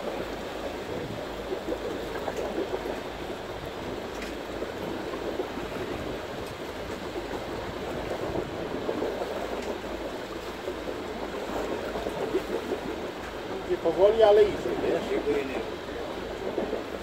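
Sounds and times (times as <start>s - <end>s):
water washing against boat hull: 0.0s - 17.0s
faint clicks: 4.1s - 4.5s, 9.5s - 9.8s.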